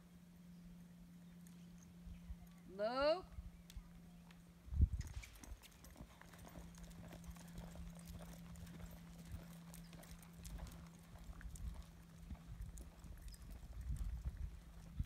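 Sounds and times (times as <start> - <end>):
steady low hum: 0.0 - 15.0
horse hoofbeats on dirt: 4.9 - 15.0.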